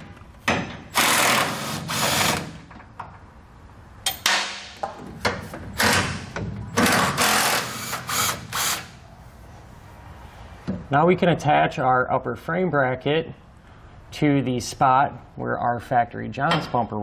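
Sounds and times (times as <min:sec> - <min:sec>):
impact driver hammering: 0:05.2 - 0:08.9.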